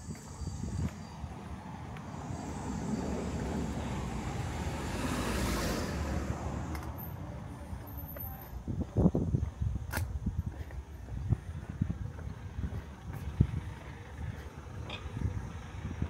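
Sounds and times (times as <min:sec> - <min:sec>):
car passing by: 0:01.1 - 0:07.4.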